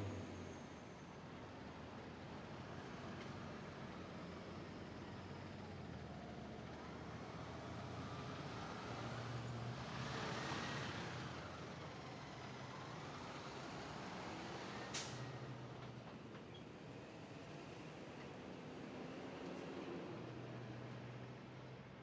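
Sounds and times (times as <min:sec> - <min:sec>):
air brake hiss: 0:14.9 - 0:15.3.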